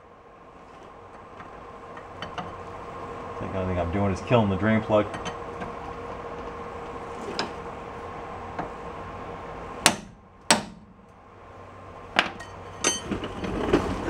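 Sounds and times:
hammer striking metal: 9.8s - 10.9s.

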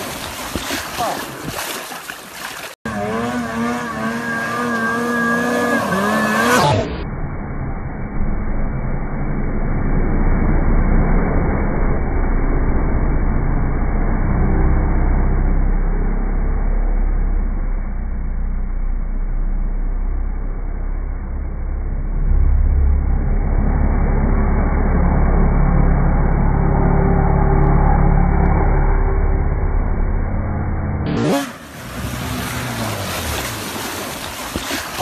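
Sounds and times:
splashing water: 0.0s - 3.2s, 31.2s - 35.0s.

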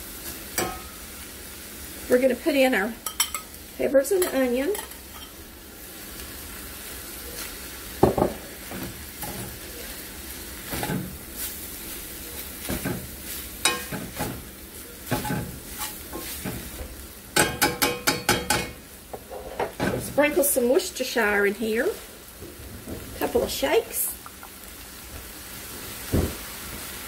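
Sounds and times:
meat and vegetables sizzling: 0.0s - 27.0s
metal spoon scraping a pan: 4.1s - 5.4s, 8.6s - 9.8s, 10.6s - 11.6s, 12.6s - 14.5s, 15.1s - 16.7s, 17.4s - 19.9s.

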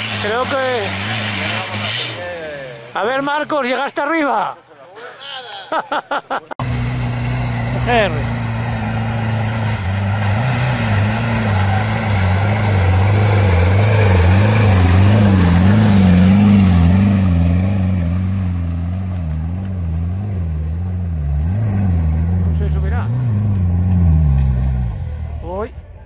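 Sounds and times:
off-road vehicle engine under load: 0.0s - 4.4s, 6.6s - 26.0s.

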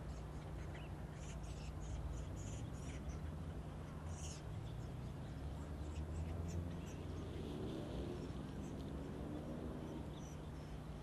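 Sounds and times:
faint bird chirps: 0.0s - 7.4s
distant engines humming: 0.0s - 11.0s.

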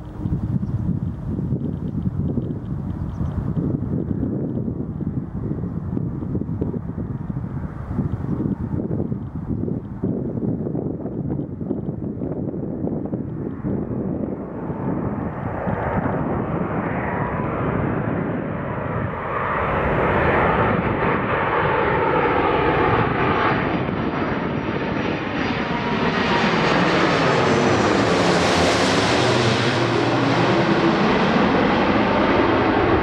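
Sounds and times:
jet airliner passing overhead: 0.0s - 33.0s.

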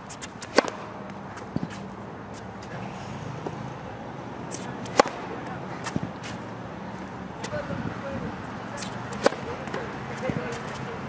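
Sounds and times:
racket striking tennis ball: 0.0s - 2.7s, 4.5s - 6.5s, 8.7s - 10.8s.

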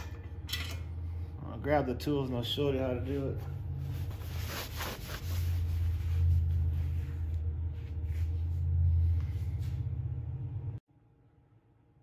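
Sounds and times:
low machine hum: 0.0s - 12.0s
rag rustling: 3.4s - 9.8s.

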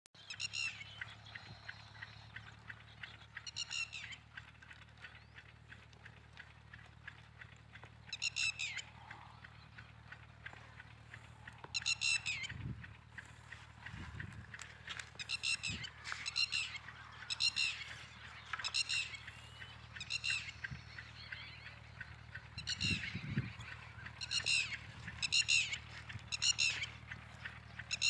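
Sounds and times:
rapid ticking: 0.3s - 28.0s
steady low hum: 0.6s - 28.0s
high-pitched animal calls: 8.1s - 9.4s, 11.1s - 14.2s, 14.8s - 28.0s.

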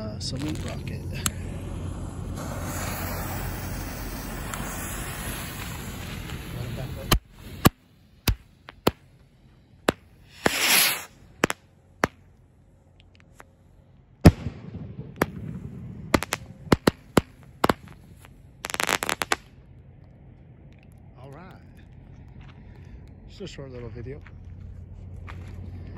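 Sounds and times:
firework crackling: 0.0s - 9.2s, 9.8s - 12.3s, 14.2s - 19.6s
firework hissing rush: 0.2s - 9.1s, 9.9s - 11.6s, 15.2s - 19.5s
firework sharp bangs: 1.8s - 9.2s, 9.8s - 12.3s, 14.2s - 19.5s.

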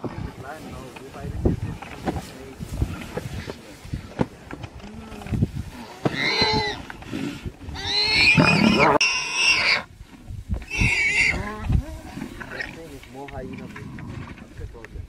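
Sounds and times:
low growl: 4.7s - 9.2s, 11.3s - 14.7s.

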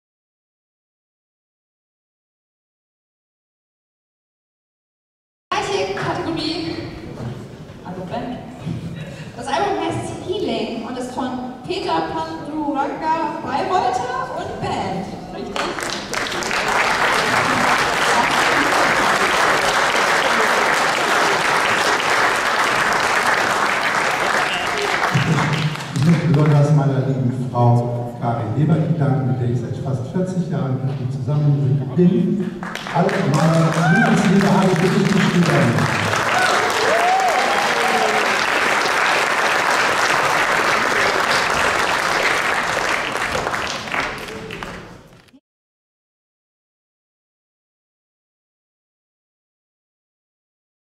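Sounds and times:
audience applauding: 15.5s - 26.7s, 32.5s - 45.2s.

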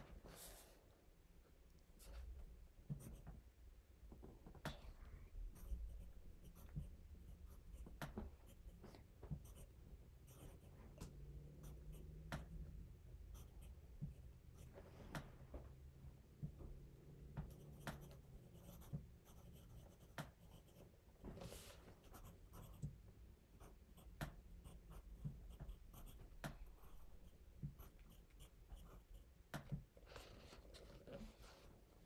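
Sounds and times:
pencil scratching on paper: 5.5s - 12.5s, 17.4s - 29.3s.

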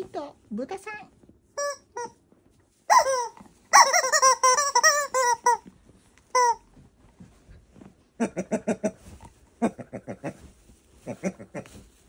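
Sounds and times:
rubber chicken toy squeaking: 1.6s - 2.2s, 2.9s - 5.7s, 6.3s - 6.7s.

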